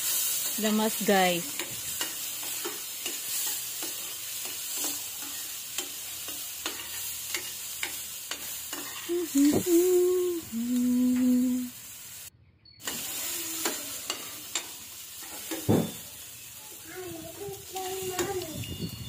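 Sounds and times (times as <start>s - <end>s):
food frying sizzle: 0.0s - 19.0s
metal spoon scraping a pan: 1.4s - 9.1s, 12.8s - 16.2s.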